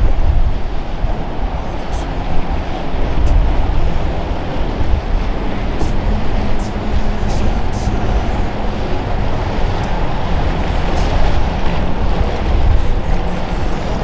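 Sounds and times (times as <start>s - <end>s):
dense rushing noise: 0.0s - 14.0s
motorboat engines running: 0.0s - 14.0s.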